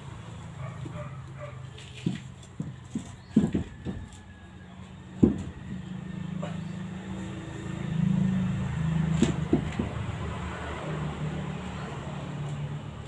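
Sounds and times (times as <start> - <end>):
short metallic knocks: 2.0 - 4.1
vehicle engine running: 4.8 - 13.0.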